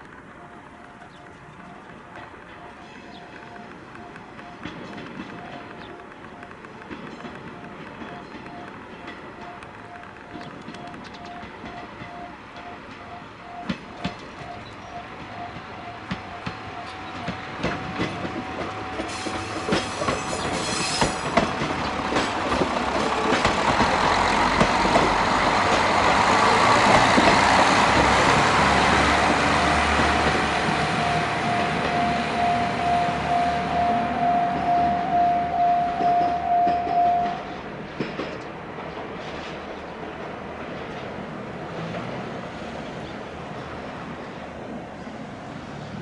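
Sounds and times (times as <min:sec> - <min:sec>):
train wheels clicking over rail joints: 0:00.0 - 0:44.0
diesel engine rumble: 0:21.2 - 0:37.3
pulsing bell-like tone: 0:30.2 - 0:37.4.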